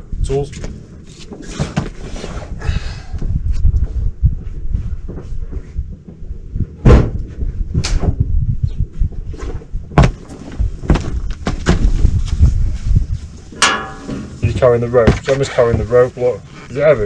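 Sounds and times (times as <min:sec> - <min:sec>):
steady low rumble: 0:02.4 - 0:17.0
knocks and thumps on deck: 0:06.8 - 0:07.3, 0:10.0 - 0:12.0.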